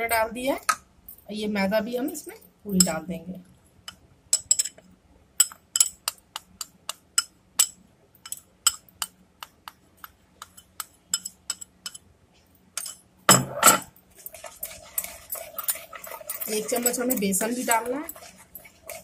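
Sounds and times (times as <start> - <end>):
bowl scraping and clattering: 12.8 - 19.0.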